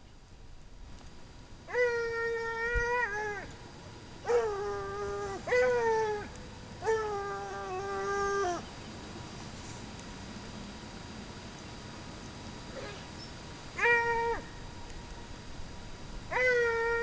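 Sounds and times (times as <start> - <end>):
hound baying: 1.7 - 3.6, 4.2 - 8.7, 13.8 - 14.5, 16.3 - 17.0.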